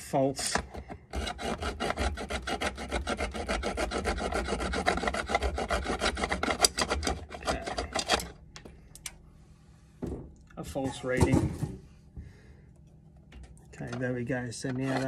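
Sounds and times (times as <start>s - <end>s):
hacksaw cutting metal: 0.4s - 8.4s, 14.6s - 15.0s.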